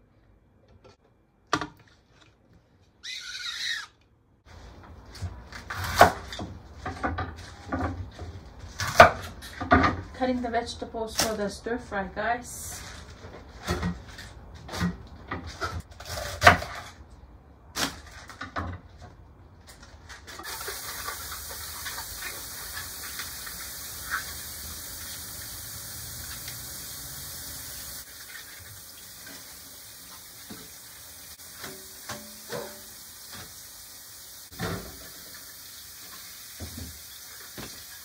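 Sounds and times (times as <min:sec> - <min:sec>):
vegetables clattering in a sink: 0:17.8 - 0:23.5
kitchen tap running: 0:20.4 - 0:38.0.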